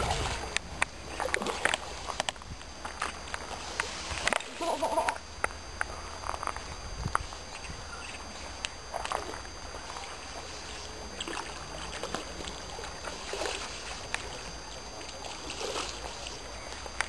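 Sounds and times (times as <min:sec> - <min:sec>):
wind rumble on microphone: 0:00.0 - 0:03.1, 0:06.2 - 0:08.2
fish splashing in water: 0:00.0 - 0:05.2, 0:08.2 - 0:17.0.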